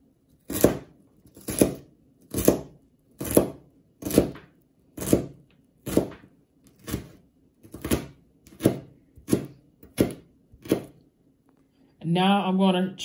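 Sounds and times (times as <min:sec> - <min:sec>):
knife chopping on plastic board: 0:00.4 - 0:11.0.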